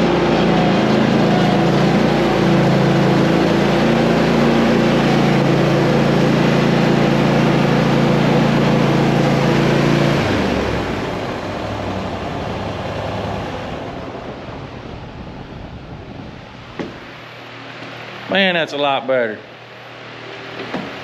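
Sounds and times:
tractor engine running: 0:00.0 - 0:14.9.

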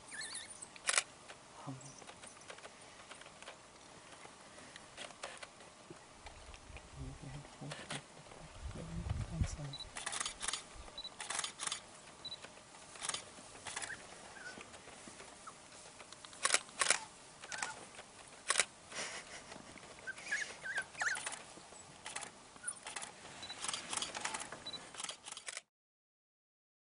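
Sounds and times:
pups squeaking: 0:00.0 - 0:00.8, 0:13.7 - 0:14.7, 0:15.4 - 0:15.6, 0:16.9 - 0:17.8, 0:20.0 - 0:21.9, 0:22.6 - 0:23.6
camera shutter clicks: 0:00.8 - 0:01.1, 0:09.9 - 0:14.0, 0:16.2 - 0:18.7, 0:21.0 - 0:21.4, 0:22.0 - 0:25.7.

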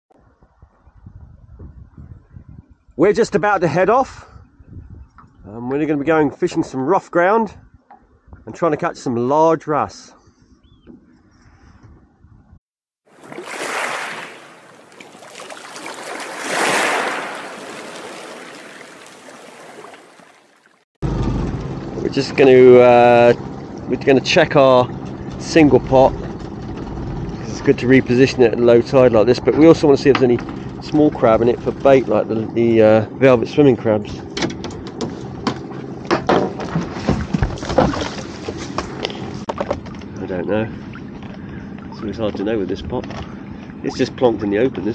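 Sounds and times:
rushing water whoosh: 0:13.1 - 0:20.8
seawater splashing and dripping: 0:13.1 - 0:20.8.

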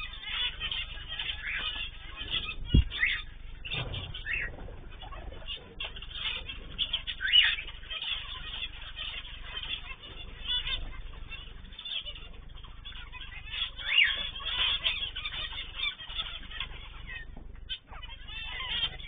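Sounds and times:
cage birds chirping and calling: 0:00.0 - 0:19.0
wings fluttering: 0:00.0 - 0:19.0
low thump: 0:02.7 - 0:03.0.

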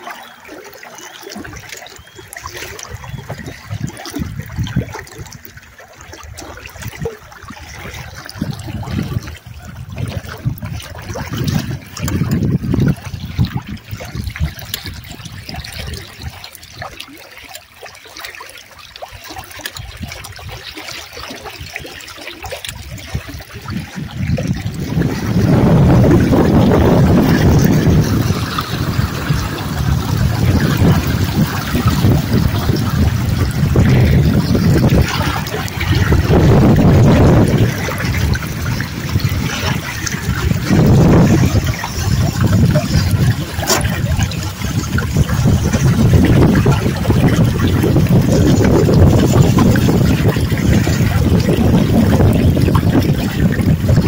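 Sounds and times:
steady water rush: 0:00.0 - 0:54.0
water lapping against hull: 0:00.0 - 0:54.0.

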